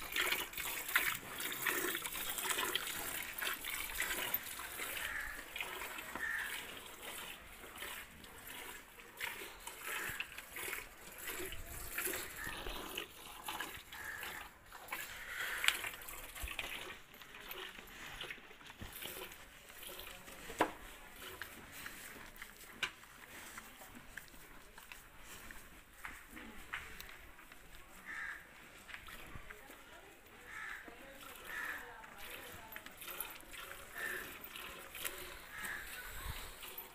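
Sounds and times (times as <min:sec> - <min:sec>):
milk squirting into metal bucket: 0:00.0 - 0:23.2, 0:30.8 - 0:36.9.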